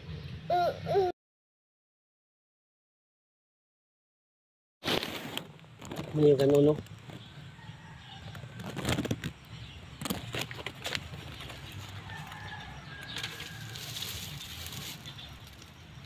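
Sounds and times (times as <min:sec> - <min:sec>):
fern fronds rustling against phone: 0:10.0 - 0:15.7.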